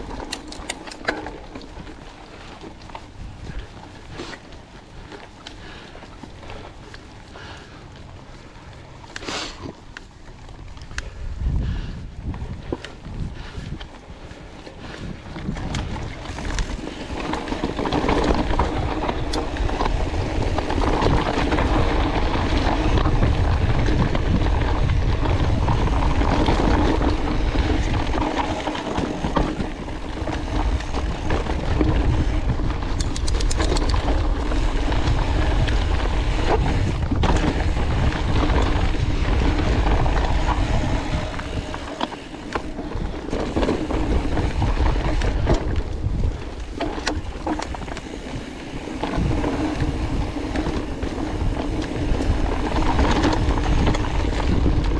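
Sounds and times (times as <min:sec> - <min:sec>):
tyres rolling over dirt: 0:00.0 - 0:54.9
wind rushing over microphone: 0:11.0 - 0:54.9.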